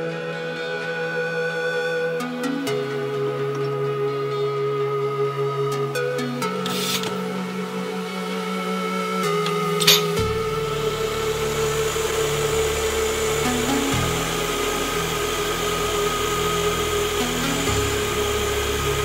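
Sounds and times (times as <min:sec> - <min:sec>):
background music: 0:00.0 - 0:19.0
milling machine spindle running: 0:06.4 - 0:19.0.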